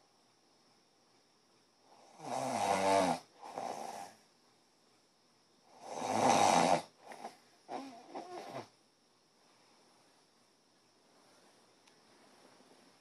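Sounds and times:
person snoring: 2.0 - 4.2, 5.8 - 8.7.

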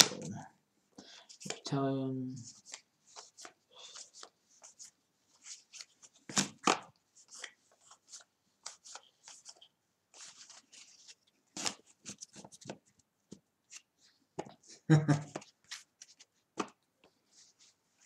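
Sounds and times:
cards flicking through by hand: 5.8 - 8.0.

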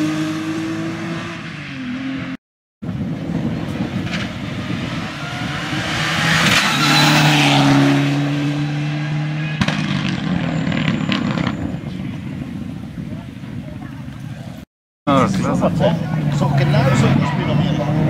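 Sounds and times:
rally car engine passing at speed: 4.5 - 11.5.

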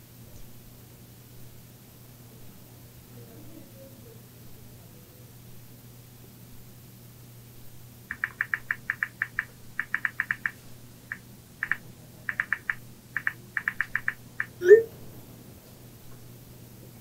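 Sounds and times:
phone keyboard clicks: 8.1 - 14.6.

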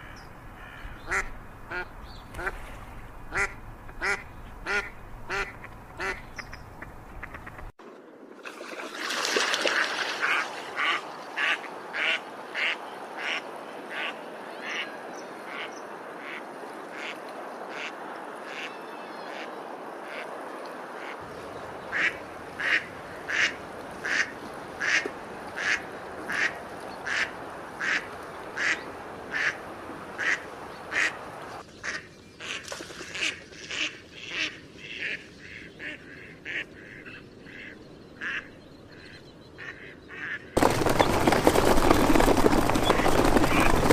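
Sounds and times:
ducks quacking: 0.0 - 2.6, 3.3 - 7.7, 9.8 - 14.9, 15.5 - 18.7, 21.9 - 29.6, 31.8 - 38.5.

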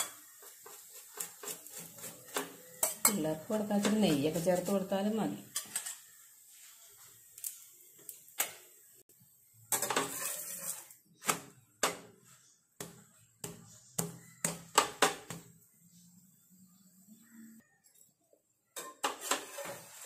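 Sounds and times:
spatula scraping frying pan: 0.0 - 7.6, 9.7 - 11.2, 18.8 - 20.0
spatula knocking on pan: 12.8 - 15.5.

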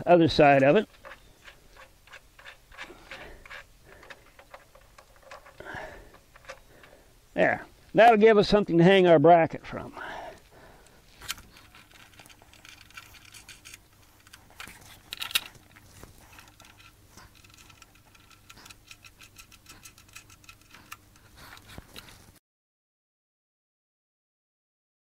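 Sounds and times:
small metal clicks and scratching: 0.0 - 7.0, 10.8 - 22.4.

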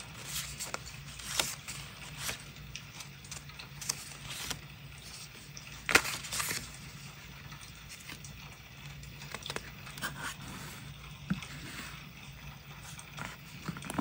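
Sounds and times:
paper rustling: 0.0 - 8.2
sharp paper clicks: 0.1 - 5.2, 5.8 - 6.8.

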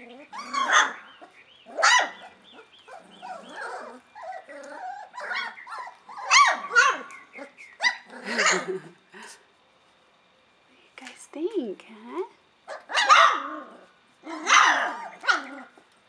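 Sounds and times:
puppies whining and yipping: 0.0 - 8.7, 14.3 - 15.8
puppy barks: 0.4 - 3.9, 5.2 - 8.7, 12.7 - 13.7, 14.3 - 15.7.

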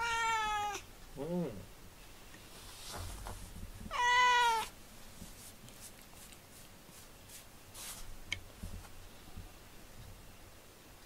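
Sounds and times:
cat meowing: 0.0 - 0.9, 3.9 - 4.7
faint rustling: 2.0 - 10.2.

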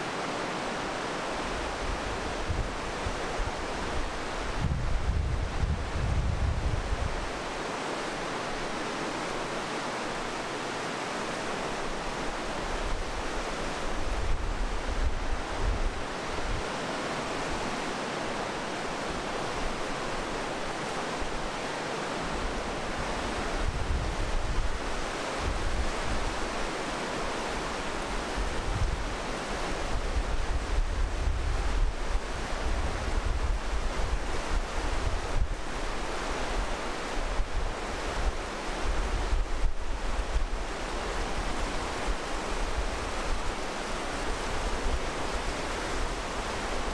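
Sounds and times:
river rushing through gorge: 0.0 - 46.9
wind buffeting microphone: 1.9 - 7.3, 23.0 - 26.4.

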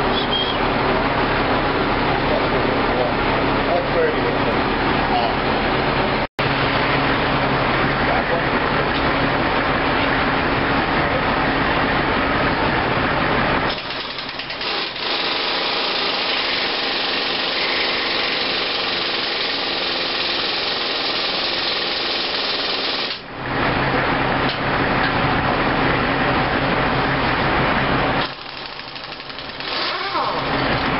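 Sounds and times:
power tool rattling: 13.7 - 23.2, 28.2 - 30.6.

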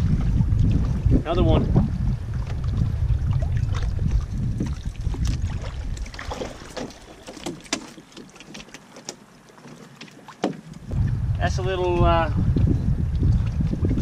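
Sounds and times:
wind rumbling on microphone: 0.0 - 7.8, 10.7 - 14.0
water lapping around canoe: 0.0 - 14.0
fish splashing: 2.4 - 11.0.

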